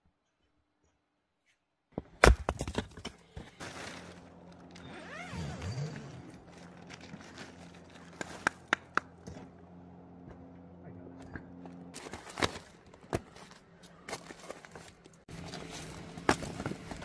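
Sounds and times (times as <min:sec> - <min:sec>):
rustling: 0:03.4 - 0:08.6
creaking glide: 0:03.6 - 0:09.6.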